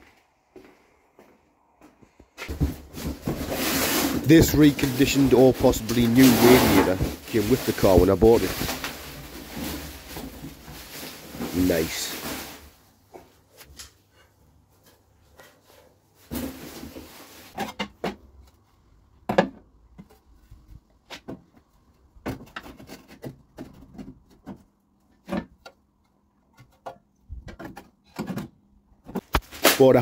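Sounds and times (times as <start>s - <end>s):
bubble wrap rustling: 2.5s - 13.0s.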